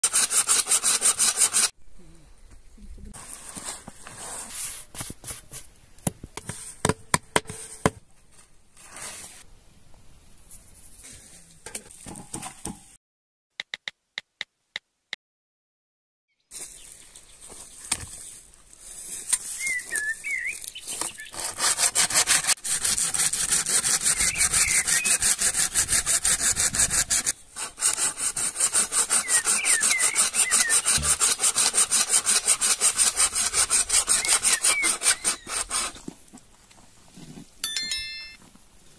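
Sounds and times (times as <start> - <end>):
hand saw cutting log: 0.0 - 1.8, 20.9 - 36.2.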